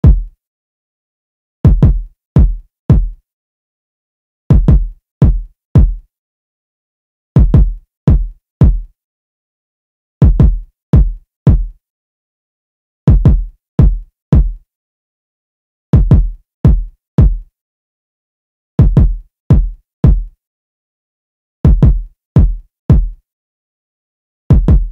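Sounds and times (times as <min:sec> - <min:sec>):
electronic kick drum loop: 0:00.0 - 0:00.4, 0:01.7 - 0:03.2, 0:04.5 - 0:06.0, 0:07.4 - 0:08.9, 0:10.2 - 0:11.7, 0:13.1 - 0:14.6, 0:16.0 - 0:17.4, 0:18.8 - 0:20.3, 0:21.7 - 0:23.2, 0:24.5 - 0:24.9.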